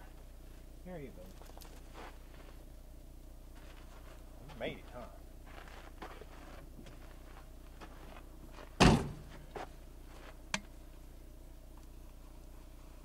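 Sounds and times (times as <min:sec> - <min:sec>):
vehicle door slamming: 0:08.8 - 0:09.3.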